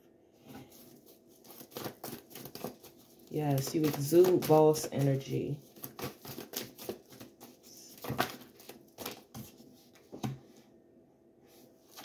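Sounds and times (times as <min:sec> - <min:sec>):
cards being shuffled: 0:00.7 - 0:09.6.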